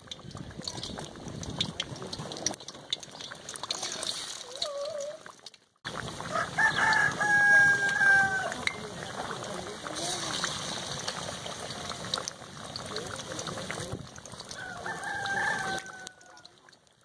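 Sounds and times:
food sizzling in hot oil: 0:00.0 - 0:17.0
rooster crowing: 0:06.2 - 0:08.6, 0:14.6 - 0:16.6.

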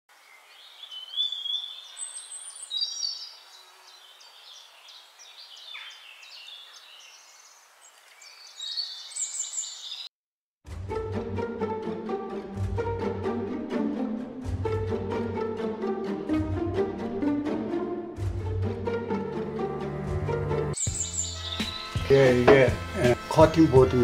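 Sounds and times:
birds chirping and trilling: 0:00.1 - 0:10.1, 0:20.8 - 0:23.3.

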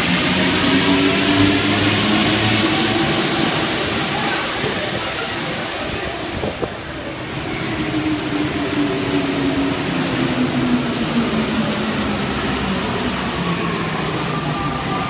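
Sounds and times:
metro train braking: 0:00.0 - 0:15.0.

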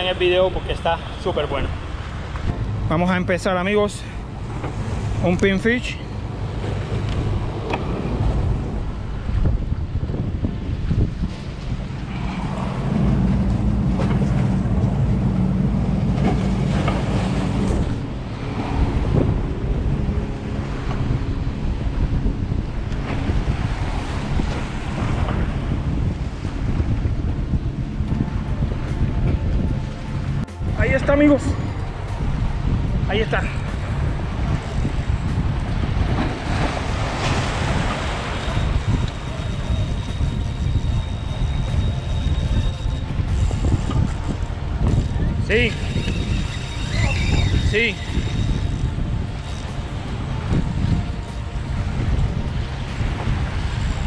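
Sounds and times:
choppy surf: 0:00.0 - 0:54.0
motorboat engine droning: 0:00.0 - 0:54.0
wind buffeting microphone: 0:00.0 - 0:54.0
waves washing against rocks: 0:33.1 - 0:41.0
faint high whistle: 0:38.3 - 0:43.0, 0:45.7 - 0:48.7.

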